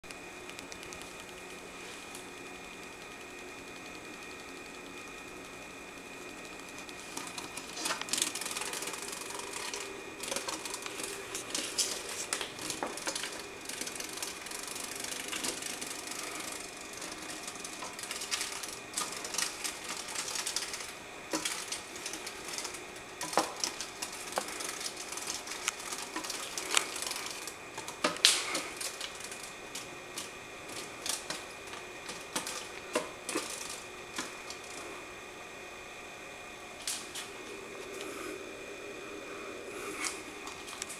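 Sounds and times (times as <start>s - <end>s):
moth wings rattling on glass: 6.0s - 34.9s.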